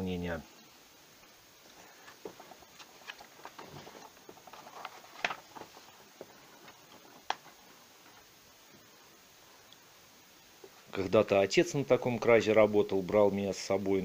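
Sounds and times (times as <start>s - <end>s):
magazine pages rustling: 1.7s - 8.4s.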